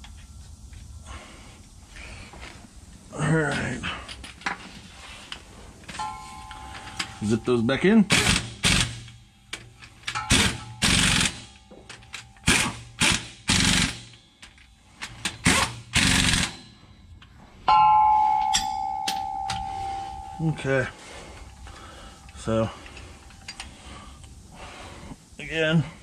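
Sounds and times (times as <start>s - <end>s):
metallic clang: 5.9s - 12.7s, 17.7s - 23.6s
impact wrench rattling: 6.0s - 16.8s.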